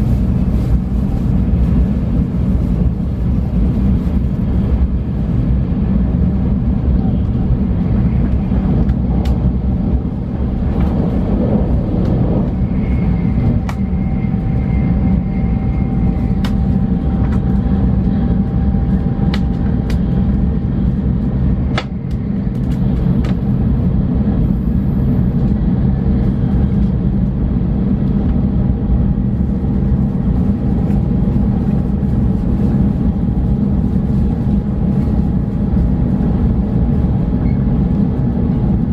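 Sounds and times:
train cabin low rumble: 0.0s - 38.9s.

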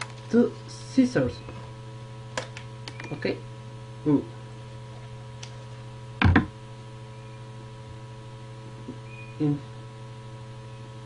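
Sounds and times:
electrical mains hum: 0.0s - 11.0s
cardboard tube thump: 6.2s - 6.5s
short vocal sound: 9.4s - 9.7s.

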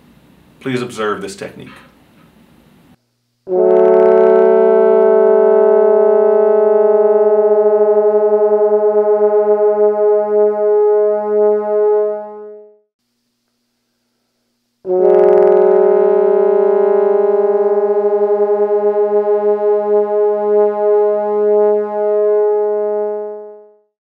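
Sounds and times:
trombones holding out-of-tune note: 3.5s - 12.8s, 14.8s - 23.9s.

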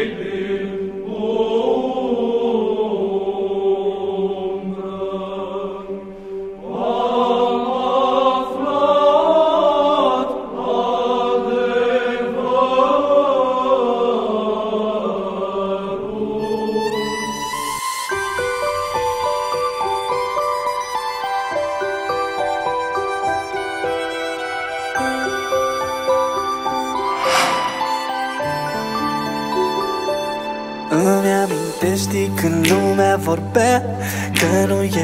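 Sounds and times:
liturgical chant: 0.0s - 17.6s.

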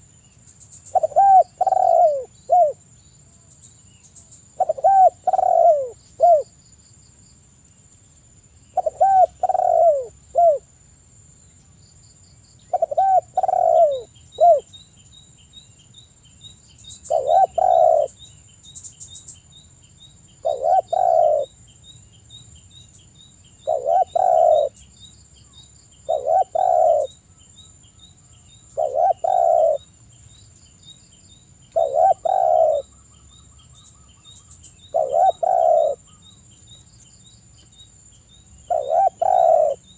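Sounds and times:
dove cooing: 0.9s - 2.8s, 4.6s - 6.5s, 8.8s - 10.7s, 12.7s - 14.7s, 17.1s - 18.2s, 20.4s - 21.5s, 23.6s - 24.8s, 26.0s - 27.2s, 28.8s - 29.9s, 31.8s - 32.9s, 34.9s - 36.2s, 38.7s - 39.9s.

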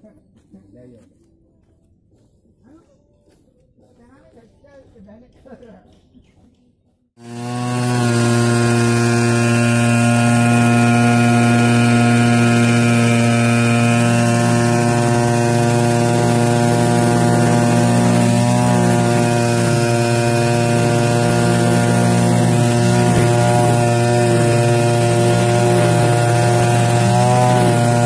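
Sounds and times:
brush cutter engine running: 7.2s - 28.0s
trimmer line cutting grass: 7.2s - 28.0s.

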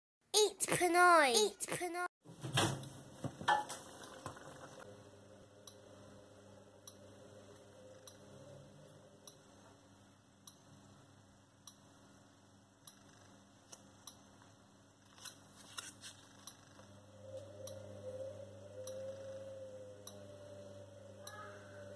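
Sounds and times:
low steady hum: 3.7s - 21.9s
faint regular ticking: 10.4s - 10.7s, 14.0s - 14.3s, 16.3s - 17.0s.

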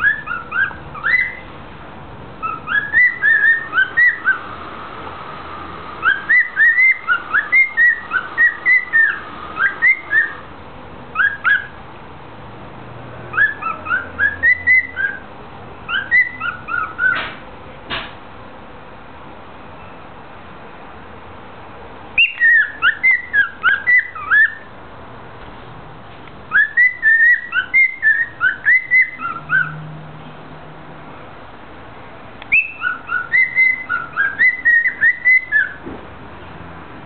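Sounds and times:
cockatiel whistling: 0.0s - 1.4s, 2.4s - 4.5s, 6.0s - 10.5s, 11.1s - 11.8s, 13.3s - 15.2s, 15.9s - 17.3s, 22.2s - 24.7s, 26.5s - 29.8s, 32.5s - 35.8s.

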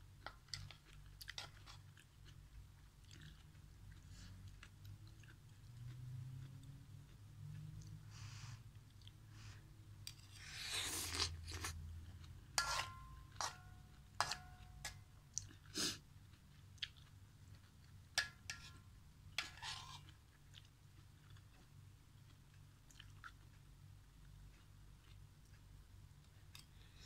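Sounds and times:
person slurping and chewing: 9.4s - 13.6s
metal spoon scraping a wok: 12.6s - 15.0s, 18.2s - 18.8s, 19.4s - 20.1s.

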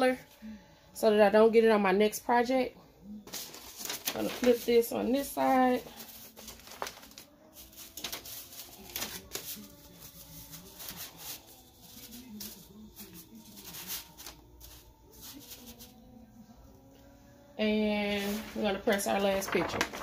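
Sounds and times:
paper rustling over sequins: 3.2s - 16.0s, 18.0s - 20.0s.

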